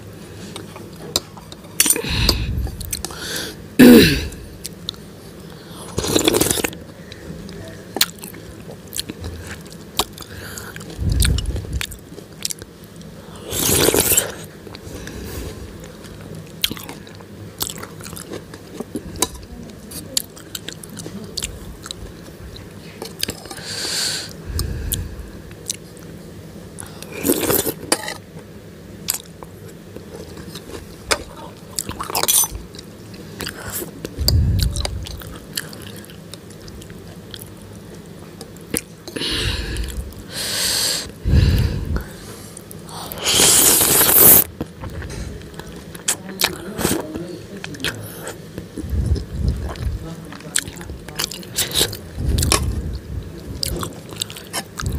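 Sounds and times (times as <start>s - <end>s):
slurping noodles: 5.9s - 6.7s, 13.4s - 14.5s, 43.0s - 44.5s
chewing and smacking: 8.0s - 13.1s, 15.8s - 19.5s, 29.1s - 39.2s, 48.6s - 54.9s
low thumps: 34.2s - 35.3s.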